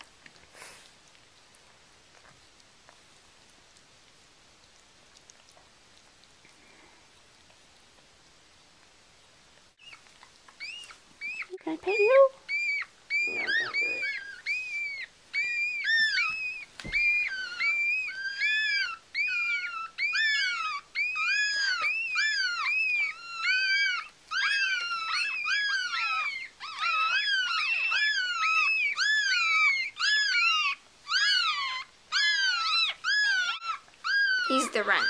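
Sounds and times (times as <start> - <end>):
puppies crying: 9.8 - 35.0.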